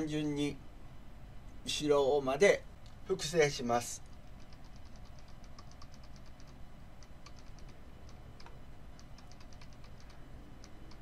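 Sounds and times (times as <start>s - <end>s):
keyboard key clicks: 4.1s - 11.0s.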